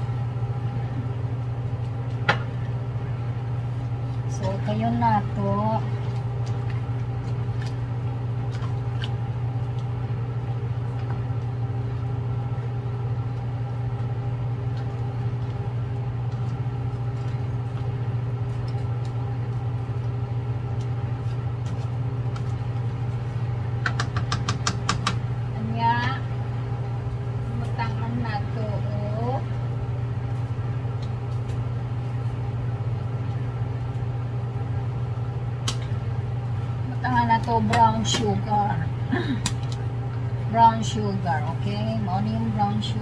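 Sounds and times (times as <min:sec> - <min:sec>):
low machine hum: 0:00.0 - 0:43.0.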